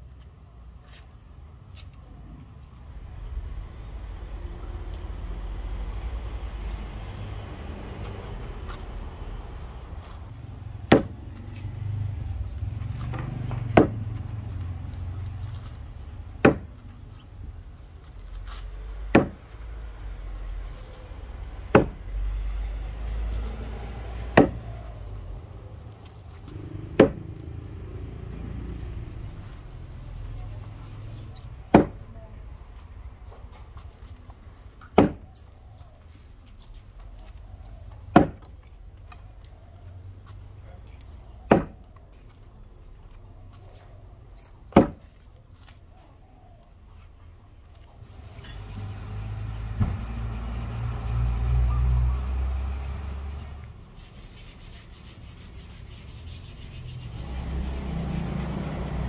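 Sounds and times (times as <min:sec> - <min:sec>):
axe chopping wood: 0:10.8 - 0:11.2, 0:13.5 - 0:14.1, 0:16.4 - 0:16.8, 0:19.1 - 0:19.5, 0:21.7 - 0:22.0, 0:24.4 - 0:24.6, 0:26.9 - 0:27.3, 0:31.7 - 0:32.0, 0:35.0 - 0:35.2, 0:38.1 - 0:38.4, 0:41.5 - 0:41.8, 0:44.7 - 0:45.0.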